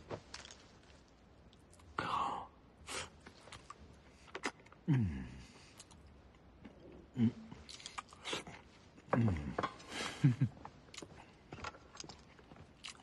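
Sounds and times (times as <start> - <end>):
man chewing and crunching: 7.6 - 9.1, 10.9 - 13.0.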